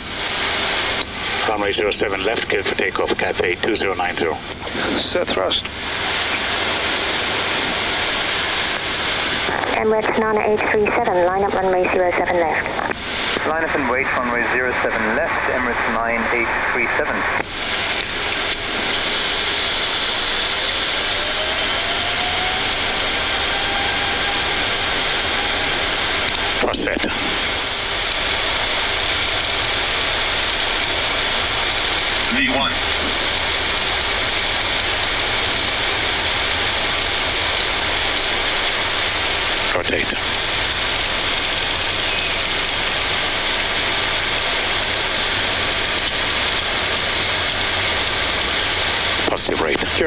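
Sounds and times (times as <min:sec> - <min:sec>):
jet engines roaring: 0:00.0 - 0:50.0
low rumble: 0:00.0 - 0:50.0
faint engine whine rising in pitch: 0:13.5 - 0:46.0.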